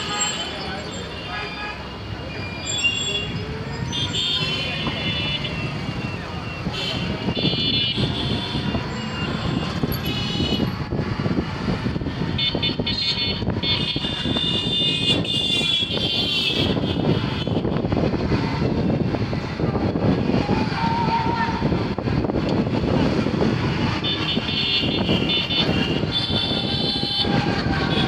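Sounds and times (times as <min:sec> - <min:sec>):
road and vehicle rumble: 0:00.0 - 0:28.0
vehicle horn toots: 0:24.1 - 0:27.3.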